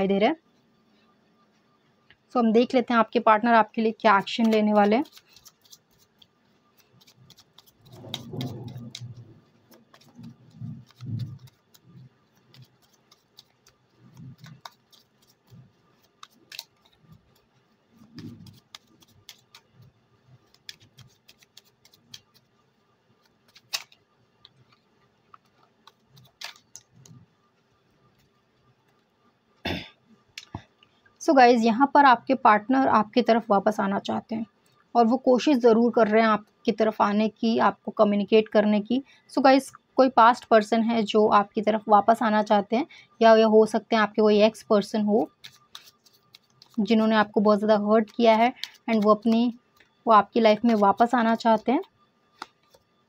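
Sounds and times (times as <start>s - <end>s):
cards being shuffled: 3.9s - 29.1s, 44.5s - 52.9s.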